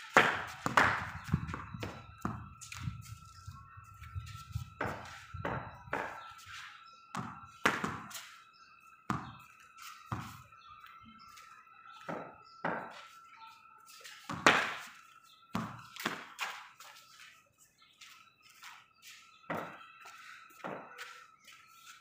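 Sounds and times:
cricket ball hitting bat: 0.1s - 2.5s, 4.8s - 6.2s, 7.2s - 8.1s, 12.1s - 12.9s, 14.3s - 14.9s, 20.6s - 20.9s
ball bouncing on concrete: 0.1s - 6.5s, 7.1s - 8.4s, 9.1s - 13.2s, 14.0s - 16.9s, 19.5s - 21.2s.

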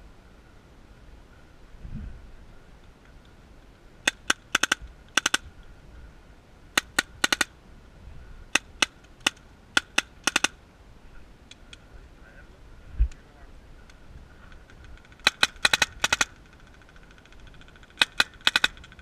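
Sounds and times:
paintball markers firing: 4.1s - 5.4s, 6.8s - 7.5s, 8.6s - 10.6s, 14.5s - 19.0s
distant paintball shots: 4.1s - 5.5s, 8.6s - 10.6s, 14.4s - 19.0s.

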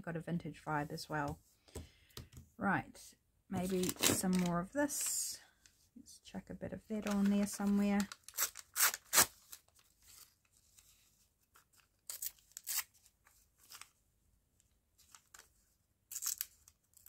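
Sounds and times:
paper tearing and rustling: 7.0s - 10.3s, 11.9s - 14.0s.

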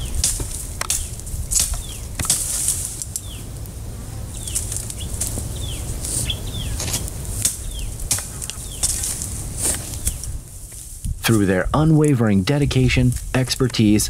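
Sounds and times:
rustling: 0.0s - 14.0s
wind rumble on microphone: 0.0s - 14.0s
bird chirping: 0.9s - 2.3s, 3.1s - 3.6s, 4.2s - 9.2s.

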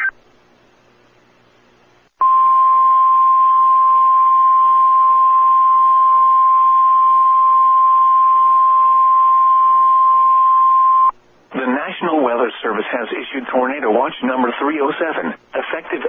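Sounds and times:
faint radio hiss: 0.0s - 2.2s, 11.1s - 16.0s.

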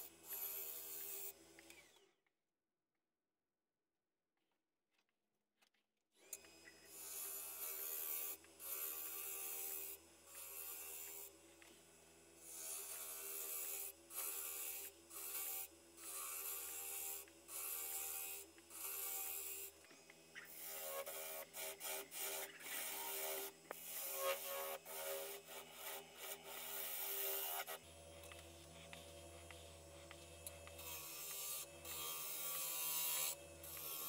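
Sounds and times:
wood lathe motor hum: 6.2s - 34.0s
gouge cutting wood hiss: 6.9s - 34.0s.

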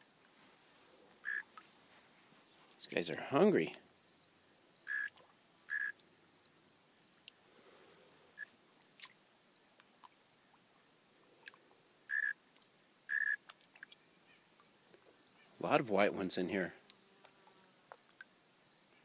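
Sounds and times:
chorus of crickets: 0.0s - 19.0s.

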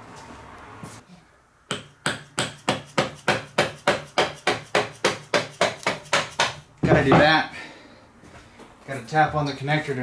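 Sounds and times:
hammer tapping: 1.7s - 7.3s.

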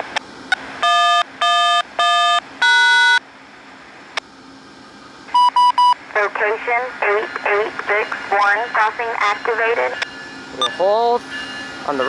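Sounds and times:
electronic beeps: 5.3s - 6.0s.

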